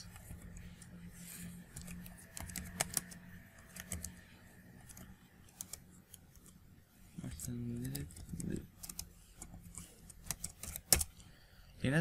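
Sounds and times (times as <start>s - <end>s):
computer keyboard typing: 1.6s - 6.6s, 7.2s - 11.4s.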